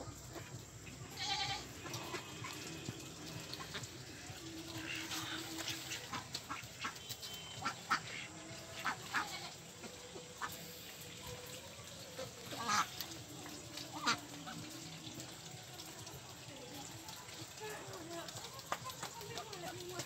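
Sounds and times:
ducks quacking: 0.0 - 11.2, 12.2 - 14.8.

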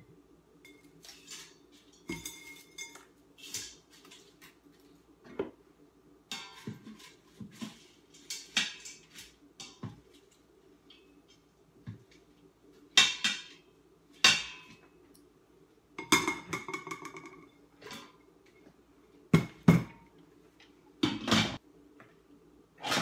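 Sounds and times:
metal tongs clinking on steel pot: 0.6 - 3.8.

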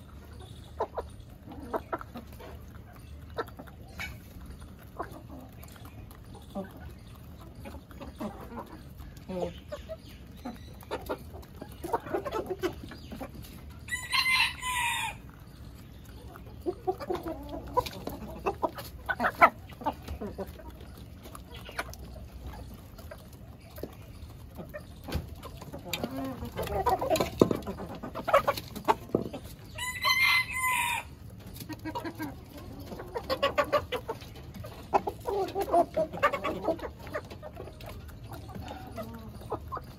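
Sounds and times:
chickens clucking: 0.0 - 39.9
rooster crowing: 13.9 - 15.2, 29.8 - 31.1.

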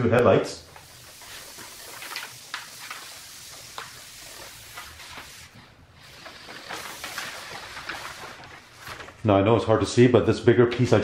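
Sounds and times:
plastic film rustling and crackling: 0.6 - 9.3.

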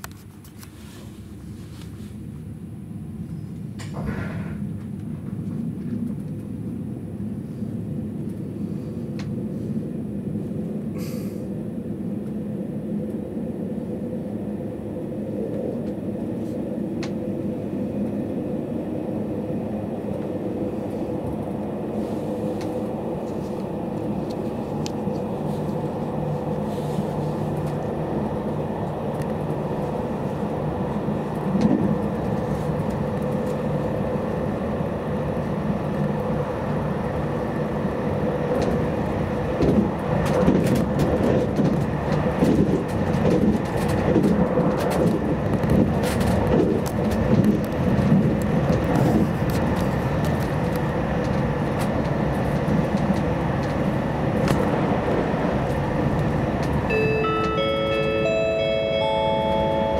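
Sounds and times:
wheels rumbling on rail: 0.0 - 59.9
train motor hum: 0.6 - 59.9.

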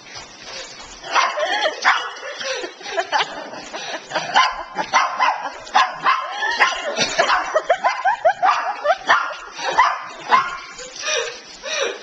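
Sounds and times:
dogs barking excitedly: 1.0 - 2.5, 3.2 - 11.0.

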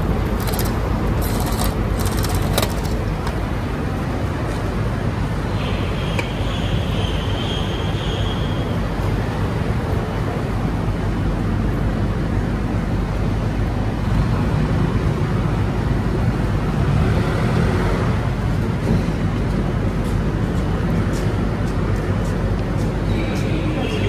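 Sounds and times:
vending machine mechanical whir: 0.0 - 3.7.

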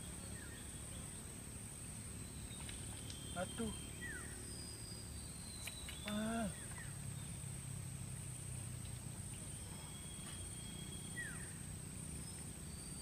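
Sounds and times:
falling bird-like whistles: 2.3 - 6.9.

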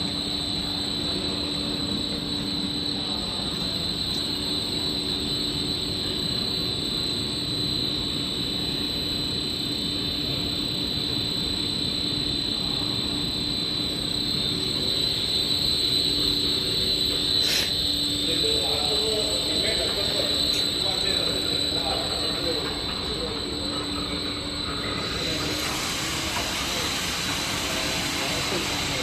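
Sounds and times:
machinery drone: 13.8 - 29.0.

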